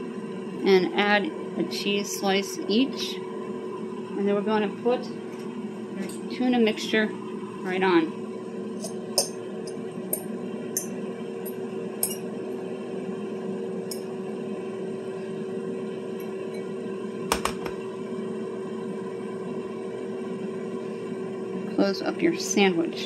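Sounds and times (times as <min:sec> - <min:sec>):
fork scraping ceramic bowl: 0:08.8 - 0:09.0, 0:12.0 - 0:12.2
bowl set down on counter: 0:17.3 - 0:17.8.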